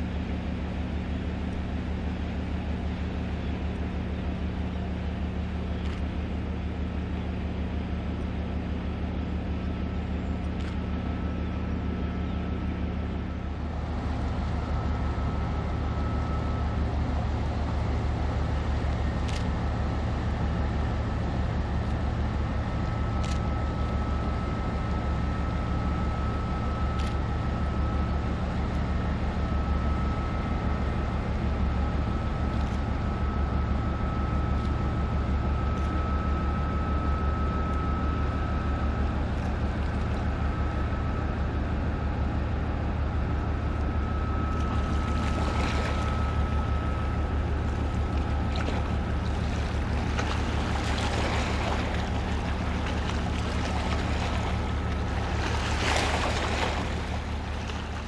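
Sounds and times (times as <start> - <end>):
ship engines droning: 0.0 - 58.0
thin high whine: 43.4 - 58.0.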